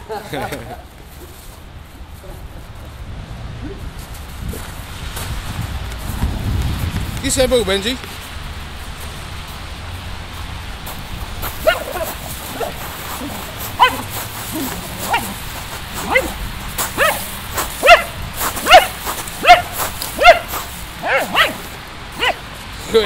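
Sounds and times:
dog yipping: 11.6s - 15.4s, 16.0s - 16.4s, 17.0s - 22.4s.

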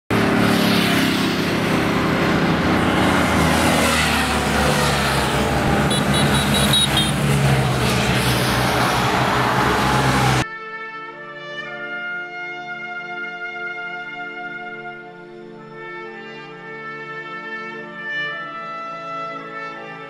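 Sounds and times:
motorcycle engines running: 0.1s - 10.4s
road noise: 0.1s - 10.5s.

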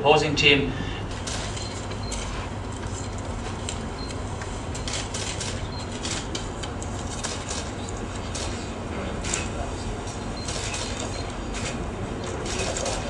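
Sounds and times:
room hum: 0.0s - 13.0s.

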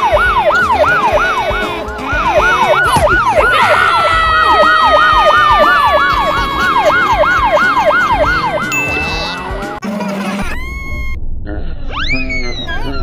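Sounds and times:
siren yelping: 0.0s - 9.8s
low rumbling: 10.5s - 13.0s.

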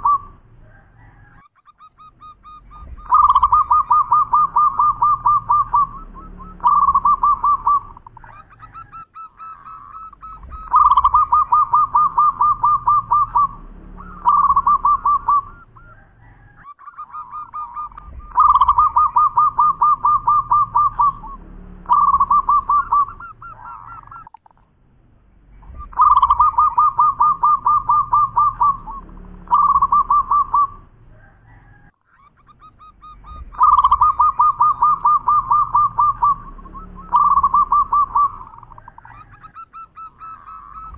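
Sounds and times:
dove cooing trills: 0.0s - 24.7s, 25.6s - 40.9s.

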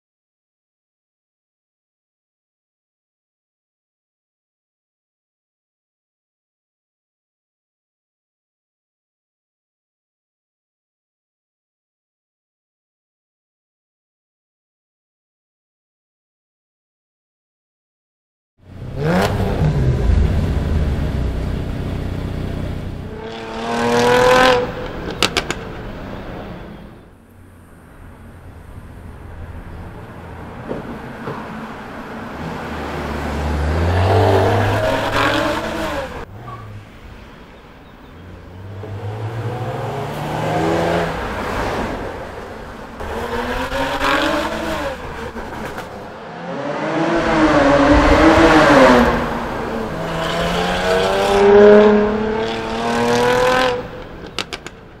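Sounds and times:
car engine accelerating hard: 18.6s - 26.7s, 31.8s - 36.7s, 38.2s - 54.4s.

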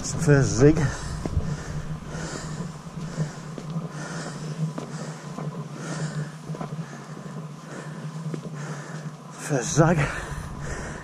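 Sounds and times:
faint footsteps on stone: 0.0s - 11.0s
man breathing hard: 0.8s - 11.0s.

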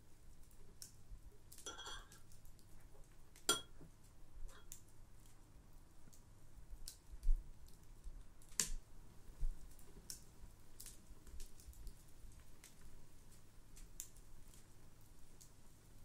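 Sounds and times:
spoon scraping a bowl: 1.7s - 2.2s.

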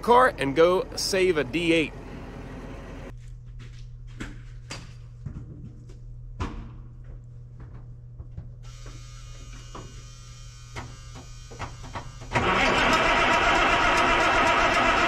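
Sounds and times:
starter motor whining: 8.7s - 15.0s.

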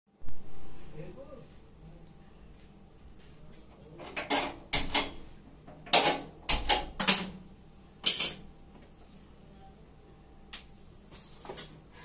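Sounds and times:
metal cookware clattering: 4.0s - 5.2s, 8.0s - 8.5s.

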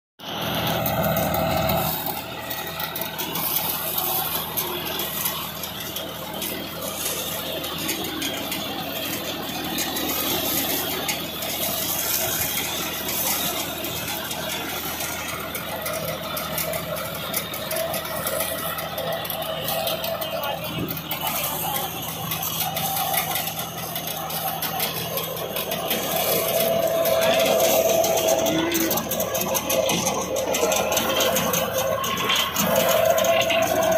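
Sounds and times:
tractor engine under load: 0.2s - 33.9s
mechanical rattle: 0.4s - 33.9s.

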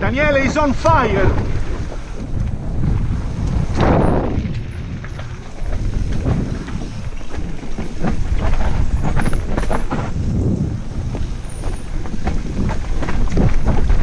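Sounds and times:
bike rattling and knocking: 0.0s - 14.0s
bike tyres rumbling on dirt: 0.0s - 14.0s.

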